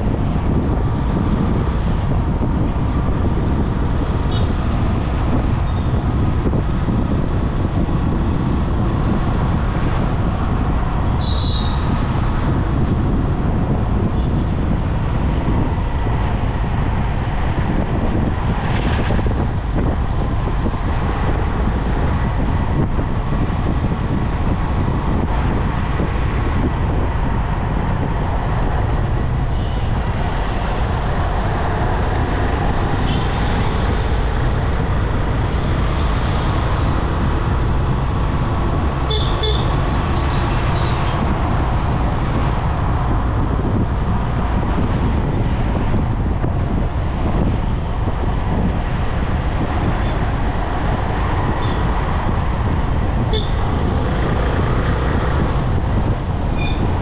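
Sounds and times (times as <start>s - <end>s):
vehicle engine and tyre rumble: 0.0s - 57.0s
car horn toots: 11.2s - 11.9s, 39.1s - 39.7s, 53.3s - 53.6s.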